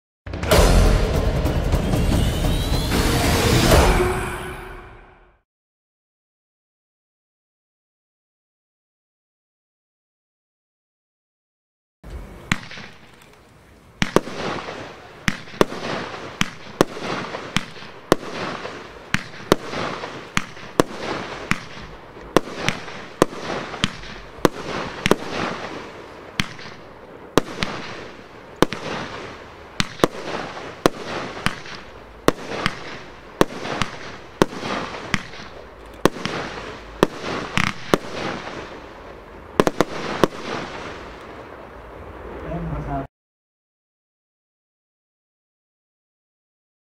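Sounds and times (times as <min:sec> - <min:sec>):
firework bangs: 0:00.3 - 0:05.1, 0:12.4 - 0:13.2, 0:14.0 - 0:42.4
firework hiss: 0:14.0 - 0:41.6.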